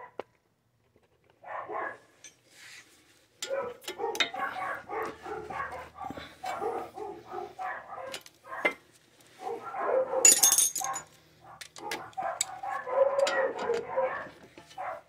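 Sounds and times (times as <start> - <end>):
dog barking and whining: 1.4 - 2.1, 3.4 - 8.8, 9.4 - 15.0
sharp metallic clink: 10.3 - 11.0.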